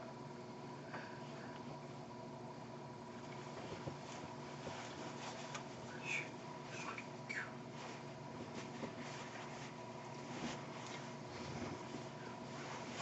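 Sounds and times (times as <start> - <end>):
steady hum: 0.0 - 13.0
jacket fabric rustling: 3.5 - 5.8, 7.7 - 13.0.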